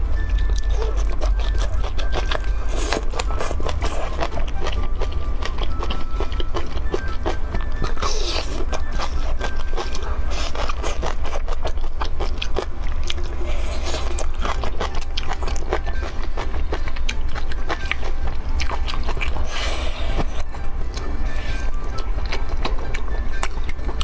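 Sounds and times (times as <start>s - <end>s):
steady low hum: 0.0s - 24.0s
slurping noodles: 13.3s - 14.2s, 19.4s - 20.4s.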